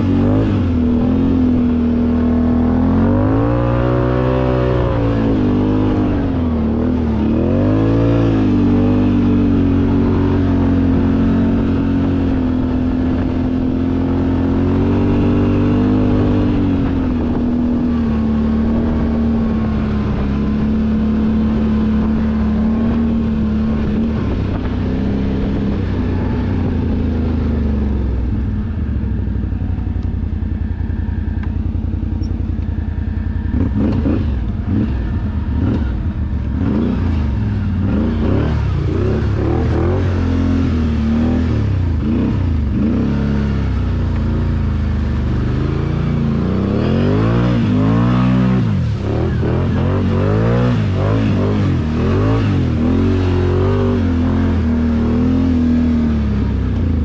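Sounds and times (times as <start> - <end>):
atv engine revving: 0.0 - 57.0.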